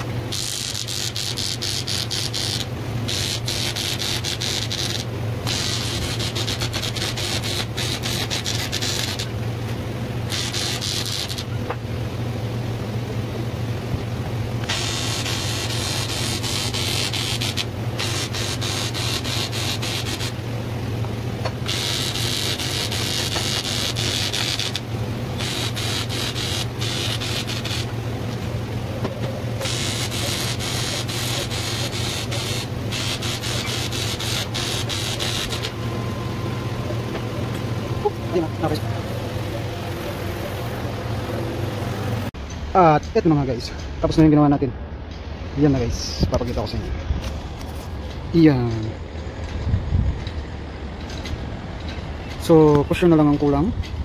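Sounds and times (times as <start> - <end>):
arc welding crackling hiss: 0.0 - 11.8, 14.5 - 28.6, 29.2 - 35.8
steady low hum: 0.0 - 54.0.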